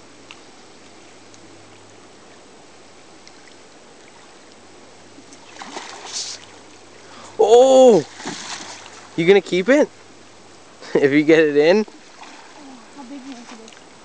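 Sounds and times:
river current rushing: 3.6s - 14.0s
fish splashing at surface: 8.0s - 9.0s.

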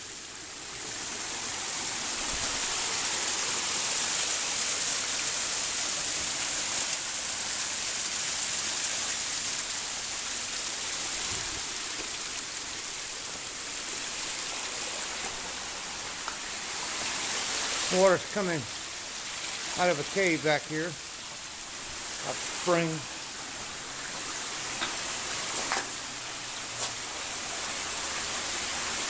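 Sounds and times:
spring water trickling over rocks: 0.0s - 29.0s.

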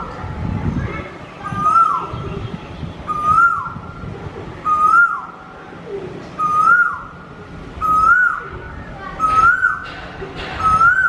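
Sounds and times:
bird whistled call: 1.5s - 2.1s, 3.1s - 3.8s, 4.6s - 5.3s, 6.4s - 7.1s, 7.8s - 8.4s, 9.2s - 9.8s, 10.6s - 11.0s.

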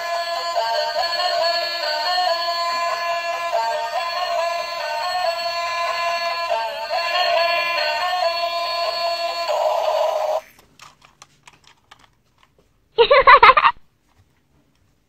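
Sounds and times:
plastic toy clicks: 10.6s - 12.5s.

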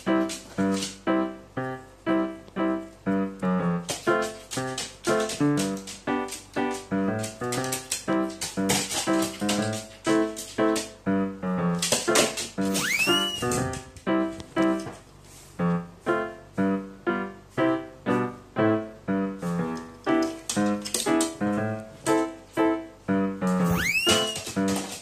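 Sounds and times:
bouncy piano music: 0.0s - 25.0s
whistle-like glide: 12.7s - 13.5s, 23.7s - 24.4s.

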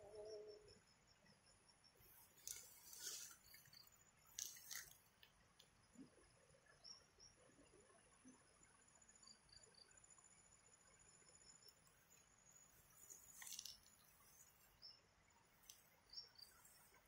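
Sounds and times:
faint high chirps: 0.0s - 4.9s
ferns rustling and crackling: 2.4s - 5.0s, 13.0s - 14.0s.

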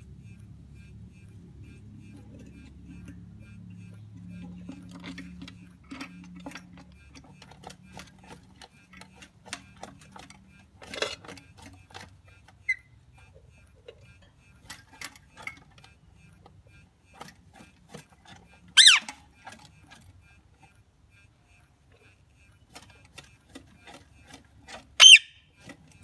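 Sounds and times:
parrot chirp: 12.6s - 13.0s, 18.8s - 19.1s, 25.0s - 25.5s
parrot squawk: 18.8s - 19.1s, 25.0s - 25.4s.

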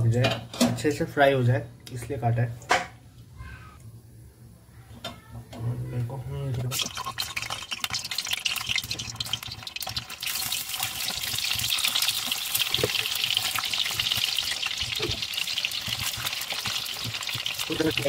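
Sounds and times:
eggs sizzling in hot oil: 6.6s - 18.0s.

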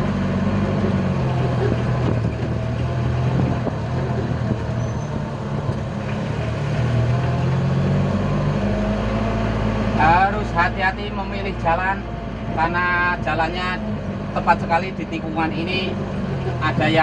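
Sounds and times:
pickup engine under load: 0.0s - 11.0s.

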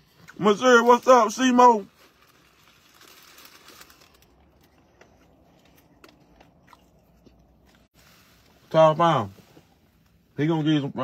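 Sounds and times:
biting and chewing chicken: 2.4s - 7.9s.

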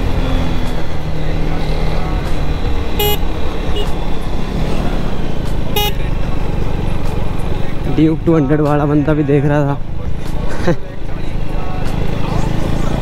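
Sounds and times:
vehicle horn toot: 3.0s - 4.0s, 5.8s - 6.1s.

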